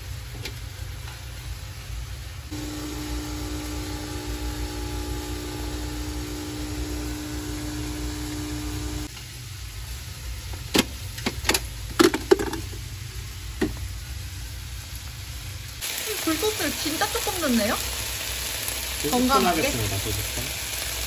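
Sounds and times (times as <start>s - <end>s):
coffee machine humming: 2.5s - 9.1s.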